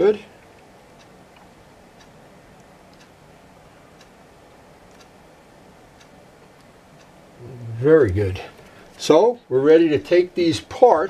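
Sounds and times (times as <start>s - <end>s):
faint regular ticks: 0.4s - 3.2s, 4.0s - 4.2s, 4.8s - 5.2s.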